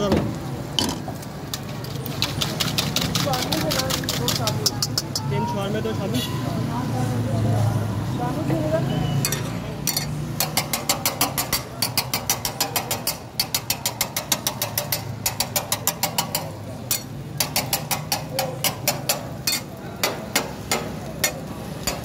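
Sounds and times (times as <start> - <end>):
metal spatula clacking on griddle: 1.2 - 5.4, 9.2 - 22.0.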